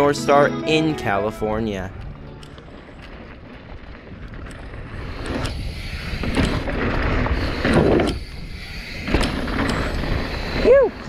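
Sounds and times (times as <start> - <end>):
bike rattling: 1.5 - 11.0
tyres rolling over dirt and rocks: 1.8 - 11.0
wind rushing on microphone: 3.3 - 11.0.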